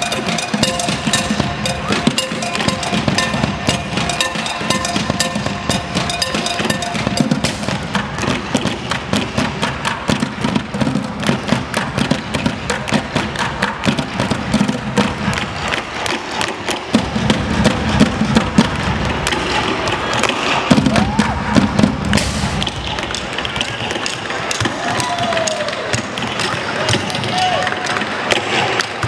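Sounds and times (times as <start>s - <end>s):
drum kit: 0.0s - 15.6s, 16.9s - 24.0s
bucket drumming: 0.0s - 29.0s
tap shoes on wooden boards: 7.2s - 29.0s.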